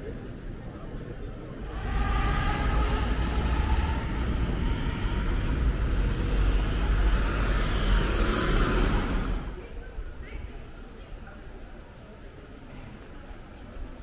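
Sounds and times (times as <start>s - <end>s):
motor vehicle passing: 1.7s - 9.7s.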